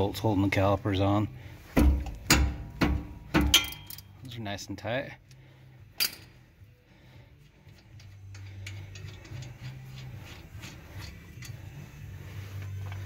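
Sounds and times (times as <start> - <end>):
low steady hum: 0.0 - 13.0
ratchet wrench clicking: 7.7 - 11.6.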